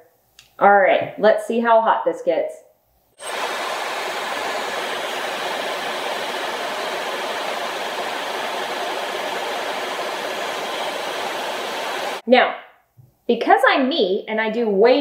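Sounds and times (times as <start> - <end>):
hair dryer blowing air: 3.2 - 12.2.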